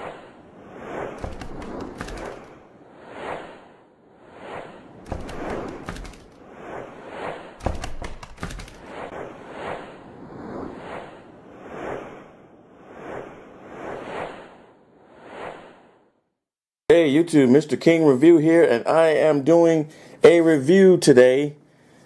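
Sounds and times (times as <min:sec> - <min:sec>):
whooshes: 0:00.0 - 0:16.2.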